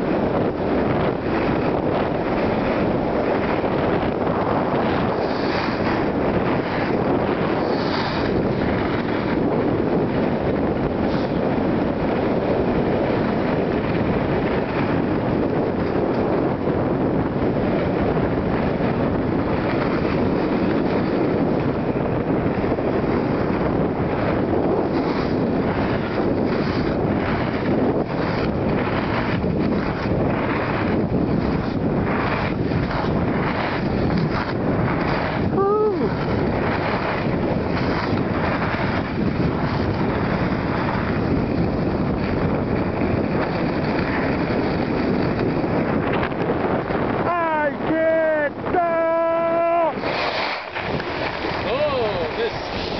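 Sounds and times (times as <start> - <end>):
wind rushing on microphone: 0.0 - 52.9
skis sliding over snow: 0.1 - 17.0, 17.7 - 52.9
sliding over snow hiss: 49.1 - 52.9.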